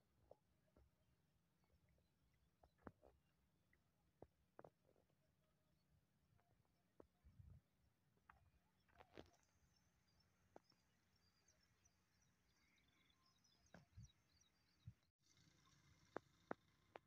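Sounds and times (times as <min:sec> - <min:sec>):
distant bird chirps: 0:08.2 - 0:17.0.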